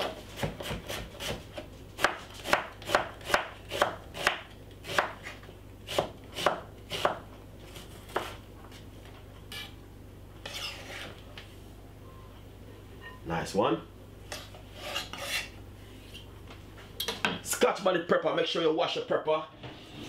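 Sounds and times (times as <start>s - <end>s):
knife chopping onion on wooden board: 0.0s - 8.4s.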